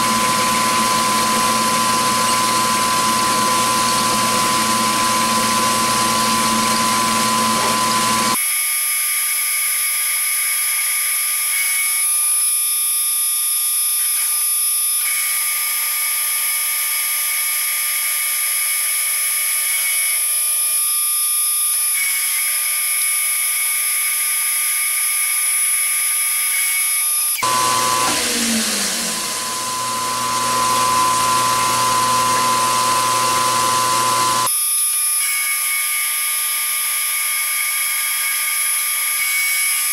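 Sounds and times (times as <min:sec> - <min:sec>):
milling machine whine: 0:00.0 - 0:39.9.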